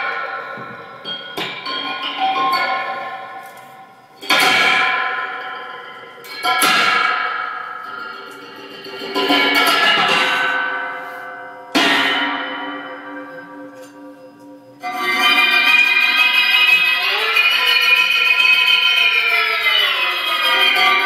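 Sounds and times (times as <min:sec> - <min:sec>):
electric guitar struck ringing tones: 0:00.0 - 0:18.4.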